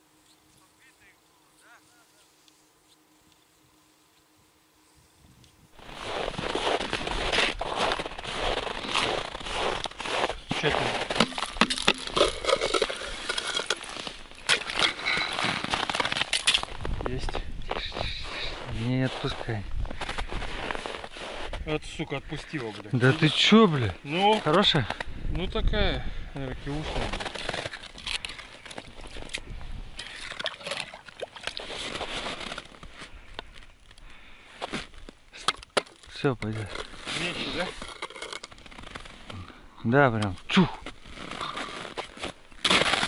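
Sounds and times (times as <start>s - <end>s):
crisp clicks of frozen snow: 5.3s - 21.6s, 26.4s - 30.6s, 31.2s - 43.0s.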